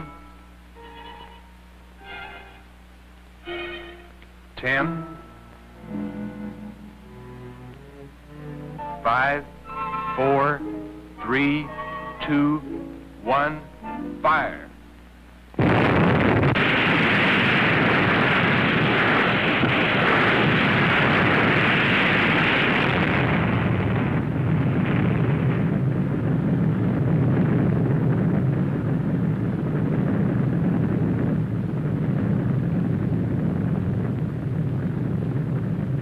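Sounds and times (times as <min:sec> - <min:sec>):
underwater explosion rush: 0:15.6 - 0:36.0.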